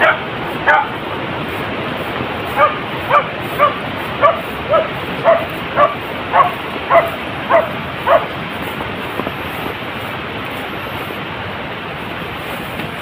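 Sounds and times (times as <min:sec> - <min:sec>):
steady background noise: 0:00.0 - 0:13.0
puppy yipping: 0:02.6 - 0:08.3.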